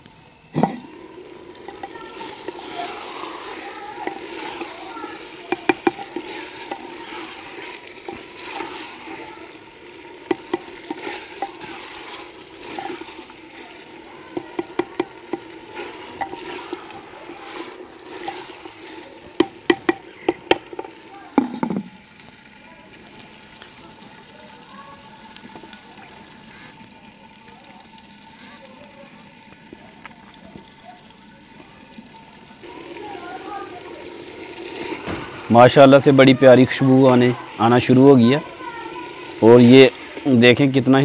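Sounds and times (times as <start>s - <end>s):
meat sizzling in a pot: 0.0s - 41.0s
spatula scraping a pot: 0.6s - 21.9s, 33.7s - 35.8s.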